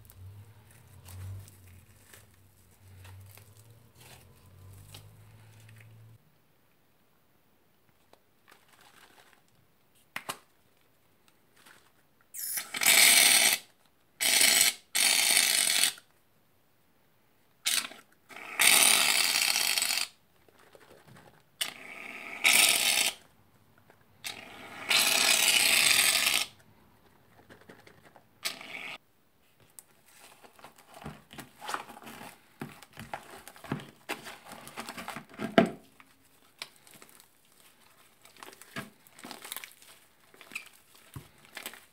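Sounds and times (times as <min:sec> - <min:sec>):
wet squishing of slime: 0:35.8 - 0:41.9.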